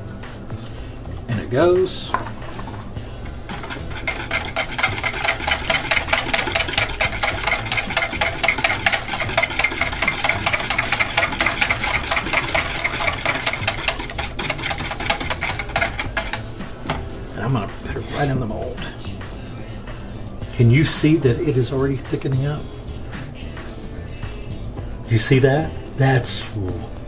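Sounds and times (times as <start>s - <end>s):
whisk clicking and scraping bowl: 2.2s - 17.0s.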